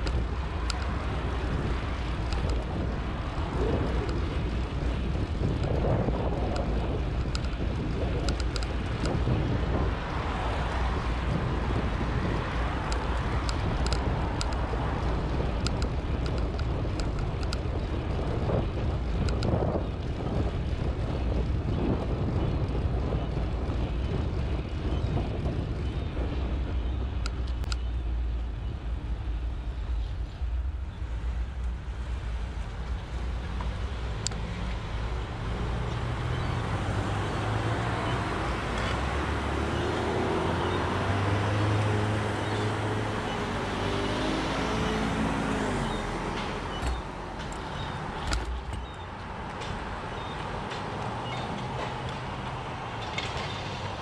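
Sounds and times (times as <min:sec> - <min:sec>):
road traffic: 0:00.0 - 0:54.0
wind rumble on microphone: 0:00.0 - 0:54.0
light ticks: 0:15.6 - 0:17.6
vehicle engine accelerating: 0:31.0 - 0:50.4.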